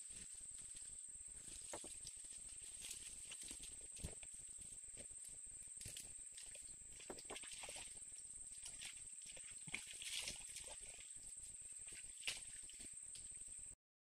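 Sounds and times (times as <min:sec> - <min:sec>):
rustling in dry grass: 0:00.0 - 0:08.0.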